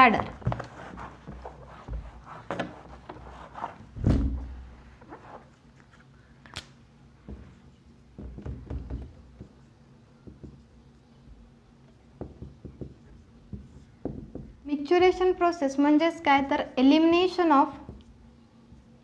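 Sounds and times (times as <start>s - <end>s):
marker writing on whiteboard: 0.2s - 3.9s, 7.2s - 15.4s
duster wiping whiteboard: 0.2s - 4.0s, 4.8s - 5.7s.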